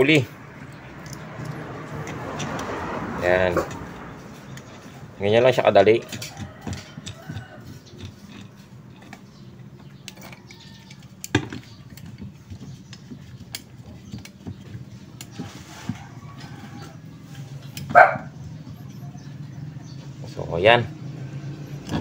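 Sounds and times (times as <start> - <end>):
metal pliers clicking and clinking: 0.6 - 2.7.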